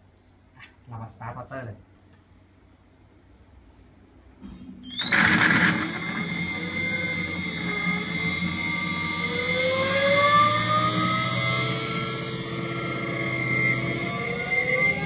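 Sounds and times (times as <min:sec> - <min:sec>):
electric motor whine: 0:04.9 - 0:15.0.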